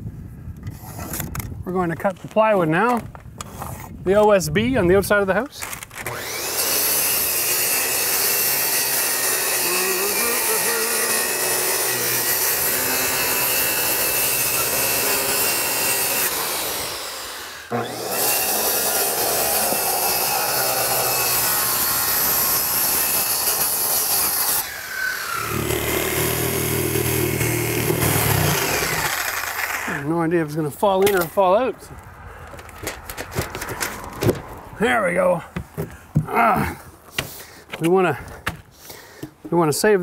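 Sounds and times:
circular saw cutting: 6.0 - 30.2.

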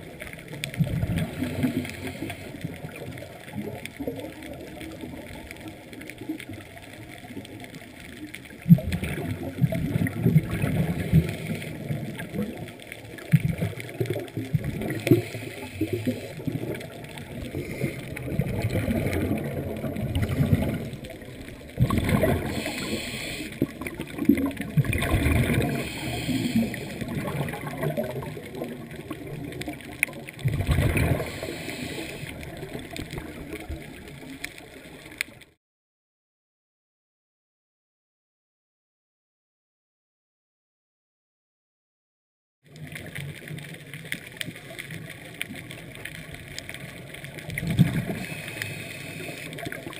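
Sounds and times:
underwater bubbles gurgling: 0.0 - 35.6, 42.6 - 49.9.

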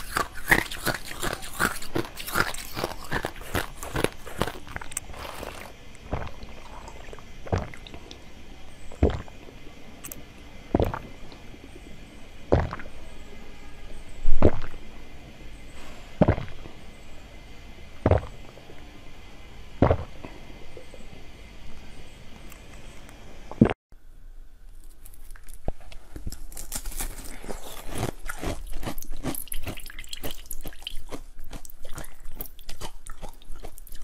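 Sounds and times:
person gulping a drink: 1.0 - 8.2, 9.0 - 9.4, 12.5 - 12.9.

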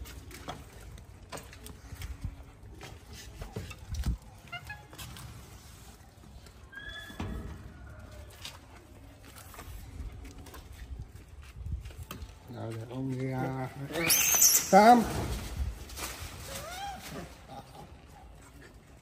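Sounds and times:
low background noise: 0.0 - 19.0
animal squeaks: 13.9 - 14.9.

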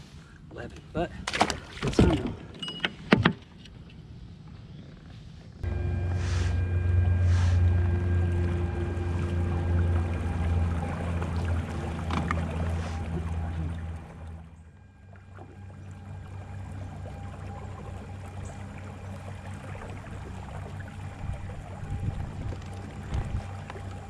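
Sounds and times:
electric motor humming: 5.6 - 14.6
water rushing along hull: 5.6 - 24.0.

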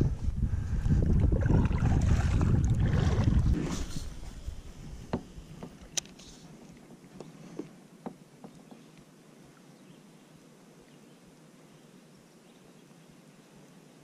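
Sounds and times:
faint outdoor background: 0.0 - 14.0
fishing rod and reel clicks: 5.8 - 6.2.

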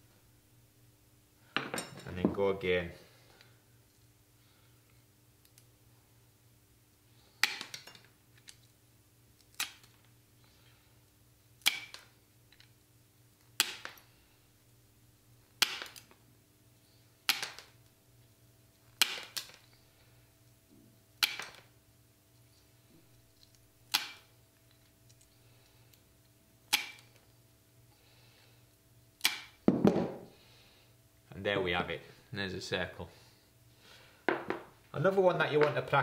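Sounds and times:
tile nippers snapping tile: 7.4 - 7.9, 9.4 - 10.0, 11.6 - 12.1, 13.6 - 14.0, 15.6 - 16.2, 17.3 - 17.8, 19.0 - 19.6, 21.2 - 21.7, 23.5 - 24.3, 26.7 - 27.2, 29.2 - 29.6.

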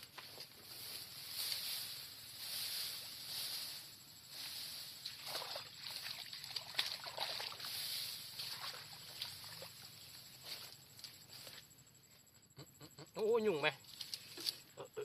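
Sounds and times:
leaves rustling: 0.0 - 11.7
water sloshing and splashing: 5.0 - 10.0.

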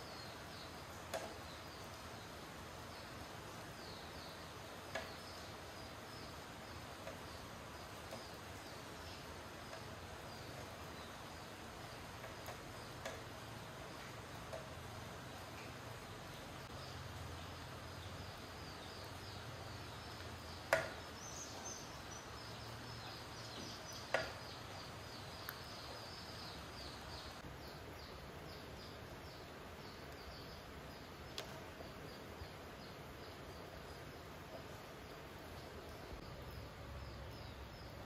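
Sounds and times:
sharp knocks: 20.7 - 21.0.

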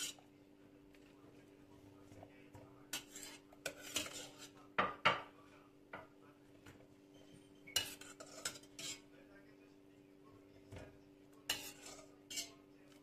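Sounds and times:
metal ladle clinking on pot: 7.7 - 9.0, 11.5 - 12.6.

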